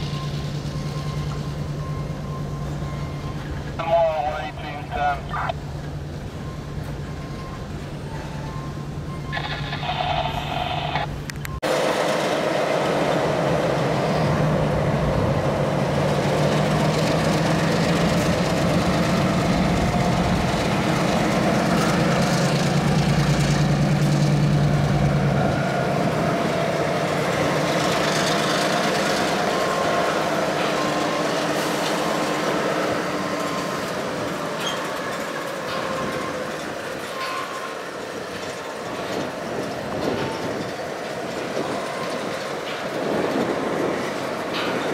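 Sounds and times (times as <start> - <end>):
crossing signal ringing: 0.0 - 5.8, 6.4 - 11.6, 28.7 - 39.4
freight train rolling: 0.0 - 44.9
locomotive diesel engine drone: 0.0 - 44.9
rail cars rumbling: 0.0 - 44.9.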